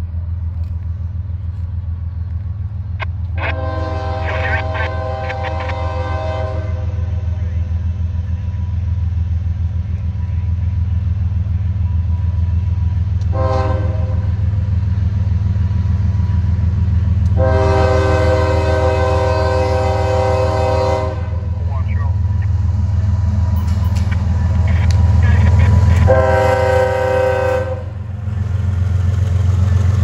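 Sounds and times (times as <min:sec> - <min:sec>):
low rumble: 0:00.0 - 0:30.0
locomotive air horn blasts: 0:03.4 - 0:07.3, 0:13.3 - 0:14.3, 0:17.3 - 0:21.6, 0:26.0 - 0:28.0.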